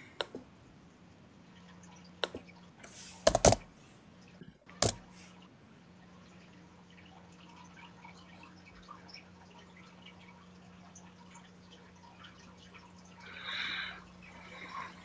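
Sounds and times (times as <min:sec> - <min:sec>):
faint steady hum: 0:00.0 - 0:15.0
clicks and knocks: 0:03.2 - 0:03.6.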